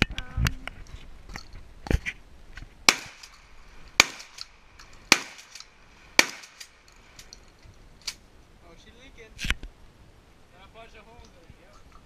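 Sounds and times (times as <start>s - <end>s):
shotgun shots: 2.9s - 3.4s, 4.0s - 4.5s, 5.1s - 6.8s.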